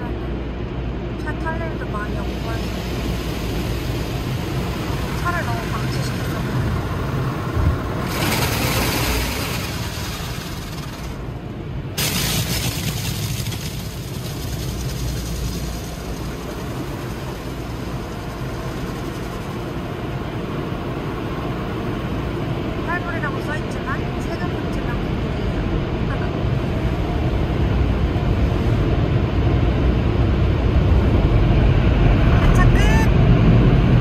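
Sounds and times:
car engine low rumble: 0.0 - 34.0
rushing hiss: 2.2 - 7.2, 8.0 - 11.4, 12.0 - 20.0.

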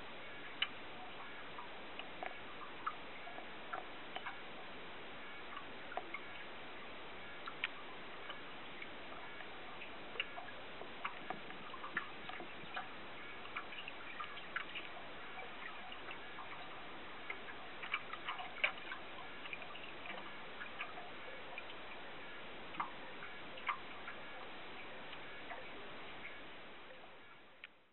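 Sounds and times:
small underwater clicks: 0.2 - 27.8.

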